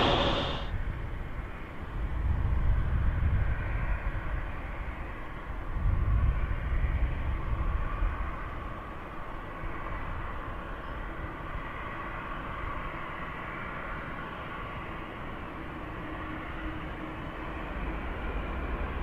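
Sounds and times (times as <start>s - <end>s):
jet engines running: 0.0s - 0.7s.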